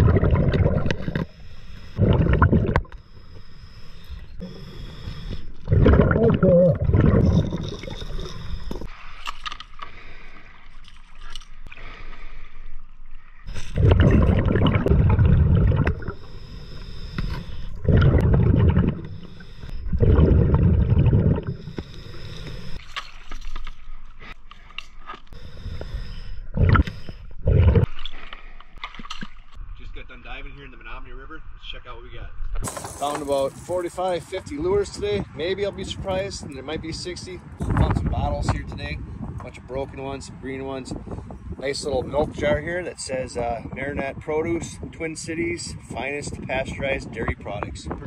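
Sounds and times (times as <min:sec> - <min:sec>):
exhaled bubbles gurgling underwater: 0:00.0 - 0:03.0, 0:04.4 - 0:08.9, 0:13.5 - 0:22.8, 0:25.8 - 0:27.9
regulator inhale hiss: 0:01.2 - 0:02.0, 0:02.9 - 0:05.7, 0:16.0 - 0:17.8, 0:19.0 - 0:19.8, 0:21.5 - 0:22.8, 0:25.4 - 0:27.3.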